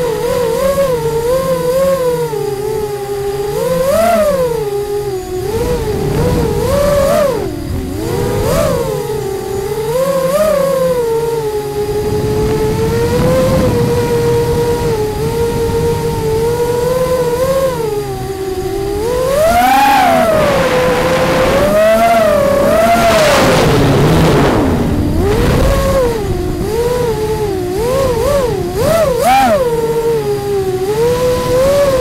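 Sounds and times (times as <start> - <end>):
drone motors whining: 0.0 - 32.0
rush of air noise: 11.6 - 17.8, 18.5 - 28.7.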